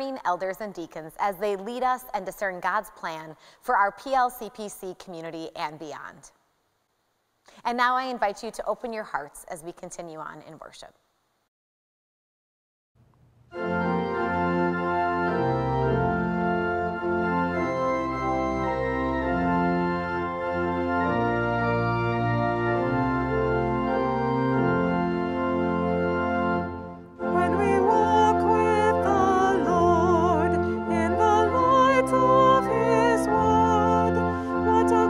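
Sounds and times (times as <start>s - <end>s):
organ playing held chords: 13.5s - 35.0s.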